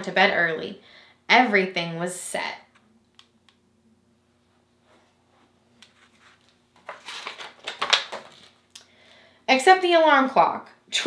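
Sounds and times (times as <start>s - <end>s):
book page turning: 5.8s - 8.7s.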